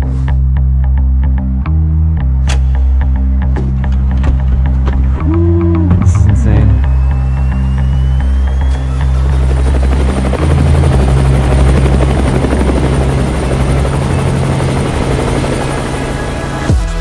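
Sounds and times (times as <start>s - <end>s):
helicopter engine and rotor: 6.2s - 16.8s.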